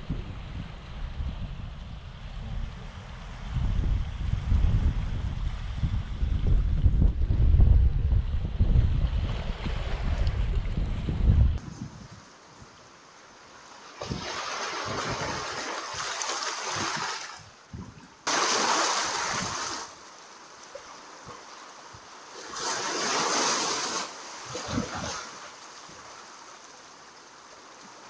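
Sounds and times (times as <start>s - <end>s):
waves washing over pebbles: 18.2s - 20.0s, 20.8s - 28.0s.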